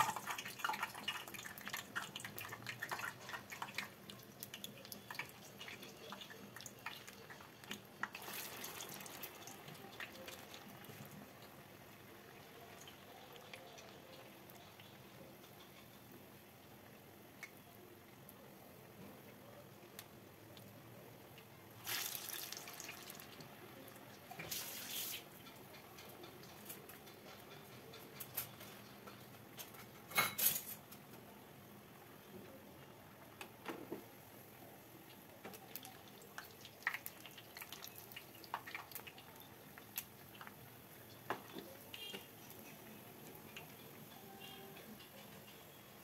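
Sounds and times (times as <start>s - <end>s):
oil sizzling and bubbling: 0.0s - 46.0s.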